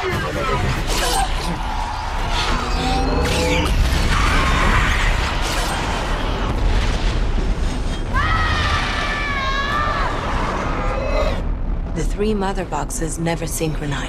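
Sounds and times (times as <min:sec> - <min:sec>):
explosions booming: 0:03.6 - 0:12.8
shouted war cry: 0:08.1 - 0:11.4.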